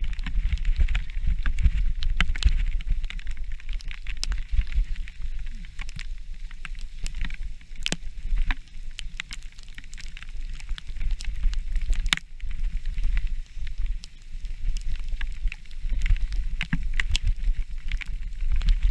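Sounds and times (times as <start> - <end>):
bike rattling over rough ground: 0.0 - 3.6
wind rumble on microphone: 0.0 - 18.9.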